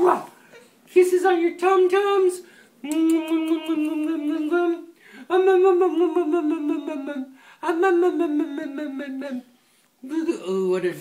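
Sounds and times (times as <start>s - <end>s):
person making wordless vocal sounds: 1.6s - 9.6s.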